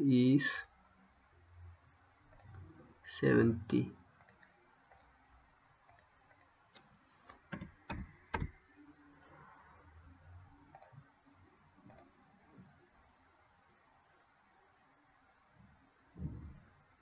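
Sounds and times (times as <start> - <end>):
computer mouse clicks: 2.3 - 2.6, 4.2 - 5.1, 5.8 - 8.5, 10.7 - 11.0, 11.8 - 12.1.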